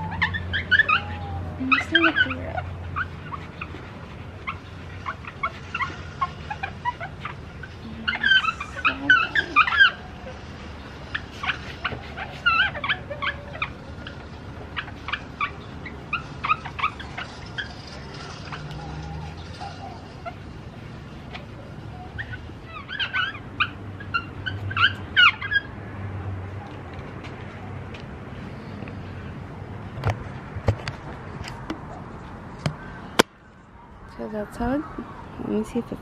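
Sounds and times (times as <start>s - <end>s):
pad squeaking on plastic: 0.0s - 10.0s, 11.1s - 20.4s.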